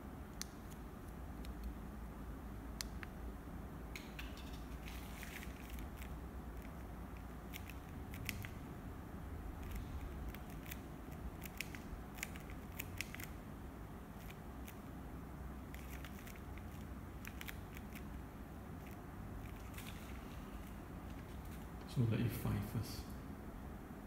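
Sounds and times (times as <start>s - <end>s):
low steady hum: 0.0s - 24.0s.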